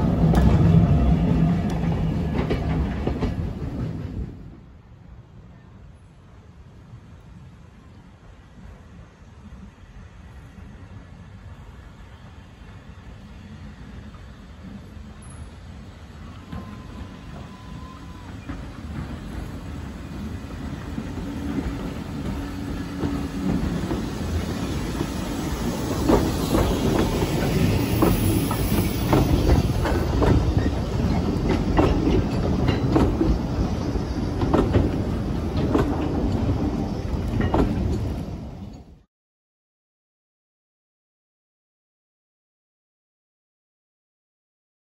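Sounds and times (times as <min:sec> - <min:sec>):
steam train passing: 0:00.0 - 0:39.0
wheels clicking over rail joints: 0:16.4 - 0:39.0.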